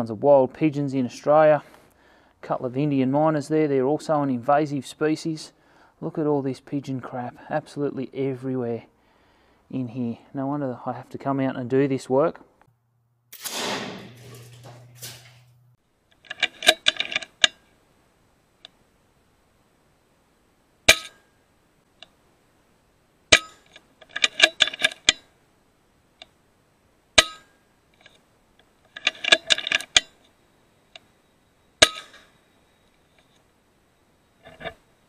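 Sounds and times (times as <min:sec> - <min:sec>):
air rifle shots: 0:13.3 - 0:14.5
metallic clattering: 0:13.4 - 0:15.6, 0:28.9 - 0:30.2, 0:31.8 - 0:32.4.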